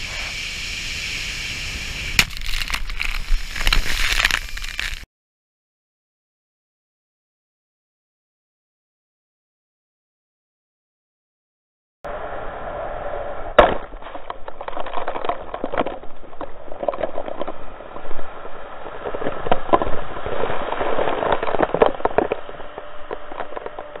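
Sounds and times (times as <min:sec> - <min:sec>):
spray splattering: 0:01.3 - 0:05.0.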